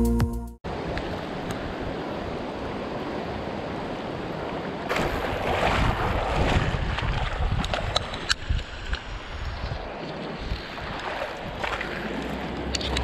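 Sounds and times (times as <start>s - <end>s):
river water rushing over gravel: 0.7s - 13.0s.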